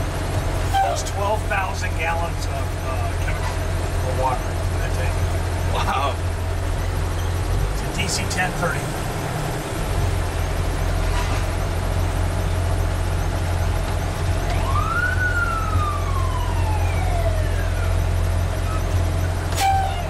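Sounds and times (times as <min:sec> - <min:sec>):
fire truck engine droning: 0:00.0 - 0:20.0
fire truck siren winding: 0:13.3 - 0:20.0.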